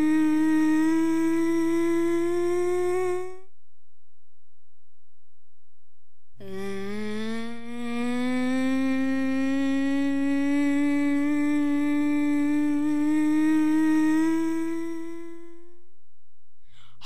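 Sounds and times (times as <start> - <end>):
person humming rising note: 0.0 - 3.5, 6.4 - 15.9.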